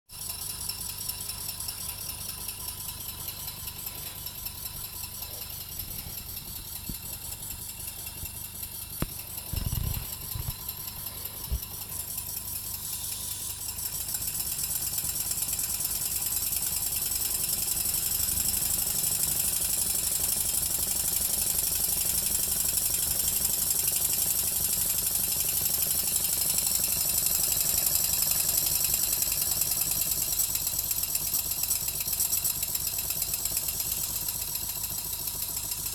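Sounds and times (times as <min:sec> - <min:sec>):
model steam engine chuffing: 0:00.2 - 0:35.9.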